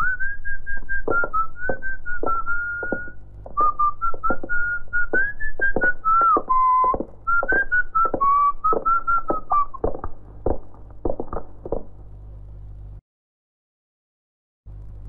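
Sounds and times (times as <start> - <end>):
man whistling a tune: 0.0 - 9.8
footsteps on hard floor: 1.1 - 4.6, 5.2 - 12.0.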